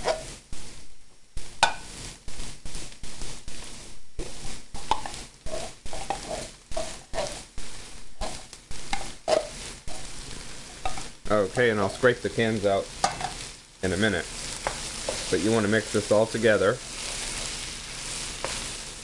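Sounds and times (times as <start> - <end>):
wooden spoon scraping tin can: 3.6 - 7.5, 8.2 - 10.1, 14.4 - 18.7.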